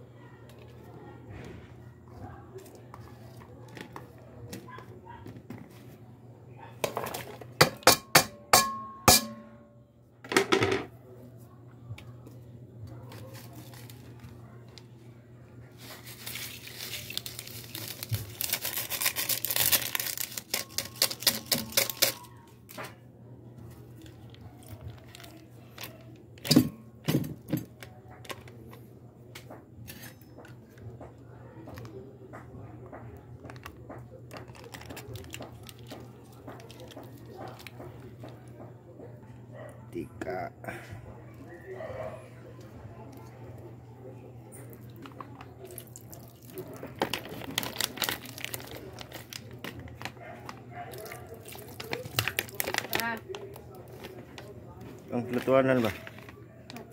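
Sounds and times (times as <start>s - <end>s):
metal pot clinking: 7.6s - 9.7s
plastic packet crinkling: 13.1s - 14.9s, 15.7s - 22.8s, 23.6s - 26.5s, 33.4s - 38.5s, 44.7s - 56.9s.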